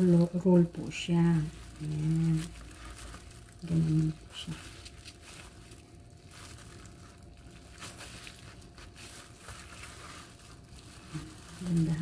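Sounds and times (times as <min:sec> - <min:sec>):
plastic gloves rustling: 0:00.0 - 0:12.0
bamboo mat rustling: 0:01.1 - 0:12.0
soft scrapes: 0:07.7 - 0:12.0.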